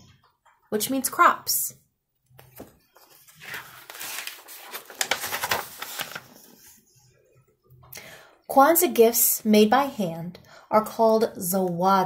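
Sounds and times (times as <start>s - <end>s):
paper page turning: 2.4s - 6.8s.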